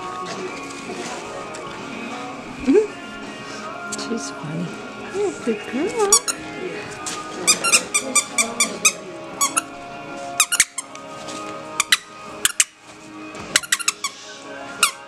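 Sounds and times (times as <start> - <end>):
dog toy squeaking: 6.1 - 6.4, 7.4 - 9.7, 10.4 - 10.9, 11.8 - 12.8, 13.6 - 14.1.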